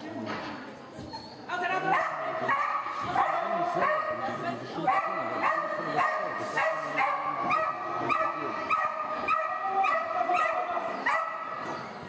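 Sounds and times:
dog yapping barks: 0:04.9 - 0:11.5.

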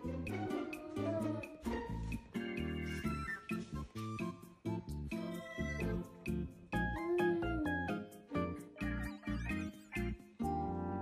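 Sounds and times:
bouncy background music: 0:00.0 - 0:11.0.

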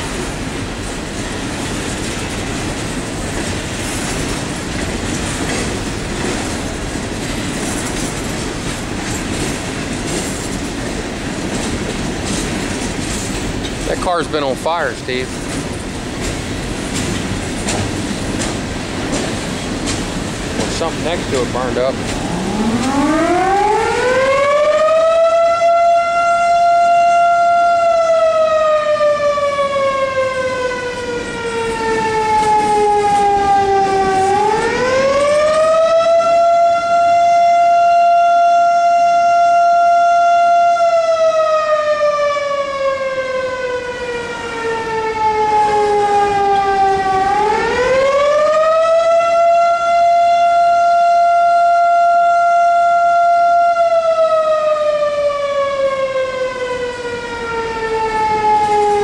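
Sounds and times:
siren wailing: 0:20.7 - 0:59.0.

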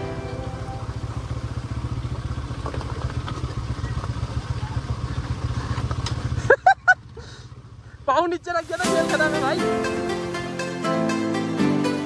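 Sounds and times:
motorcycle engine running: 0:00.0 - 0:11.6
knocks of bike over stones: 0:02.4 - 0:04.2.

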